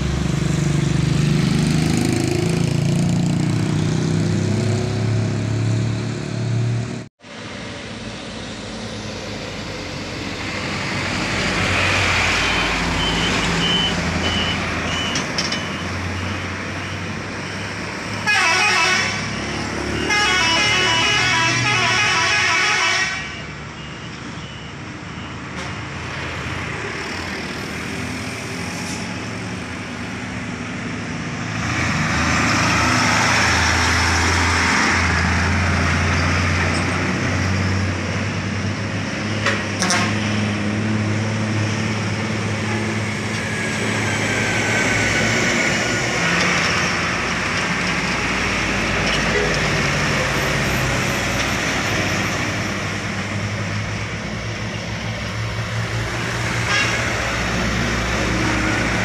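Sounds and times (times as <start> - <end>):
diesel trucks driving past: 0.0 - 59.0
pulsing vehicle horn: 18.2 - 19.4, 20.0 - 23.4, 56.6 - 57.2.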